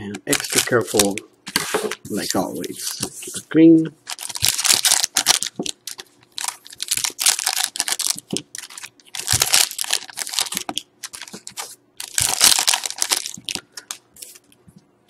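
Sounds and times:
card pack wrapper crinkling and tearing: 0.3 - 1.2, 4.1 - 14.4.

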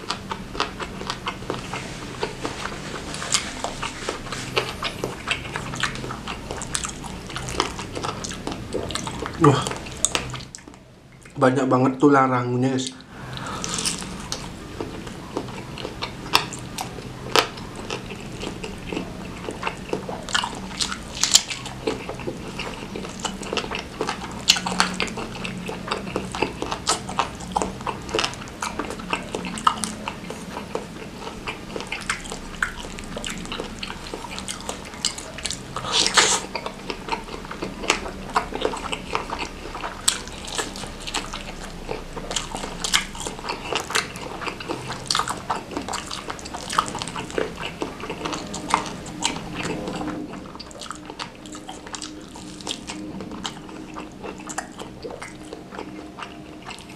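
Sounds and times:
biting and chewing: 0.0 - 11.7, 12.6 - 56.9
wet mouth clicks: 12.8 - 56.9.

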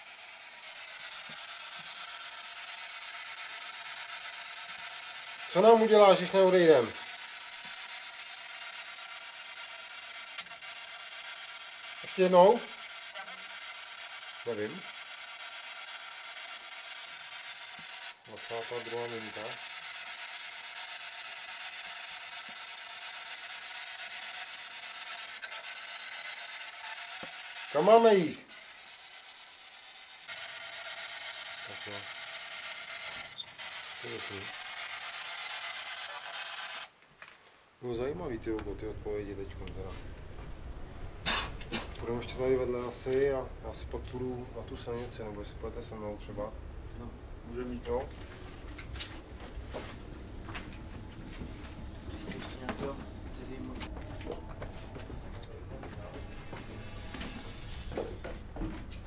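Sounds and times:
radio static hiss: 4.6 - 7.8, 11.9 - 13.4, 18.1 - 19.8, 25.0 - 28.6, 30.3 - 37.0, 37.8 - 54.5, 55.3 - 58.7.

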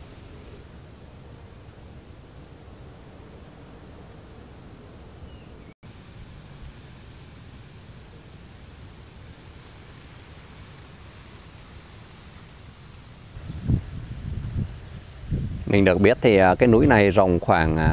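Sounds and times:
high insect drone: 0.0 - 17.9
low rumble and hiss: 0.0 - 17.9.

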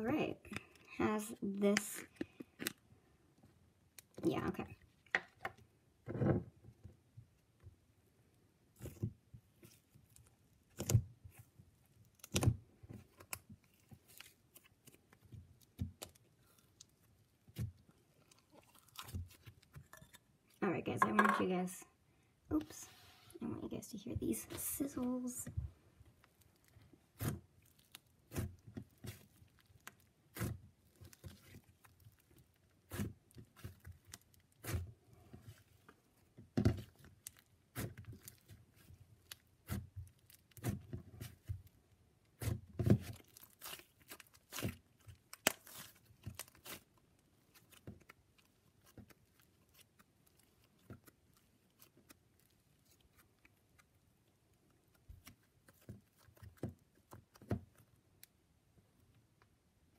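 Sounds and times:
slime crackling and popping: 8.8 - 20.2, 26.1 - 58.6.

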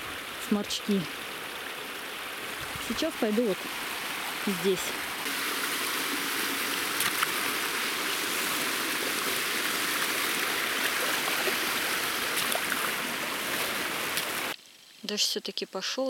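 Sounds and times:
water rushing through concrete channel: 0.0 - 14.6
boots splashing through water: 5.2 - 14.5.

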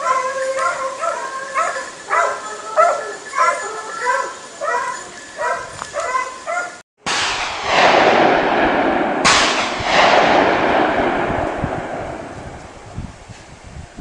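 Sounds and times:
hound barking: 0.0 - 6.8
gunshots with rolling echo: 7.0 - 13.0.

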